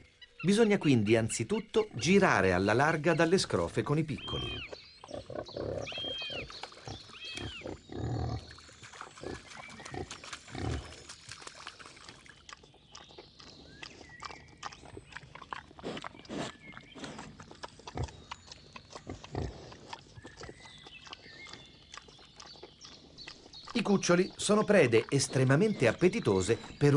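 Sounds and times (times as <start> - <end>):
boar grunting: 4.2 - 8.6, 14.6 - 22.0.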